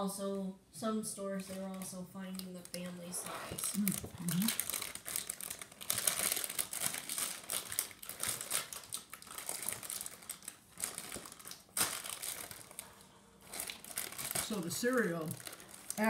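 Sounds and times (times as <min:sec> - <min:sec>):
plastic bag crinkling: 0:01.4 - 0:16.0.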